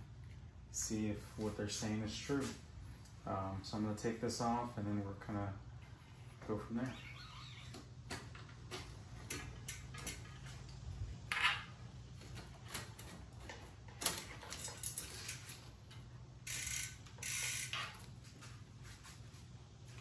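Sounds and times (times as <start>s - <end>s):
bike wheel clicks and rattles: 7.9s - 18.5s
bike hub ratcheting: 8.2s - 10.5s, 14.5s - 15.7s, 16.4s - 18.1s.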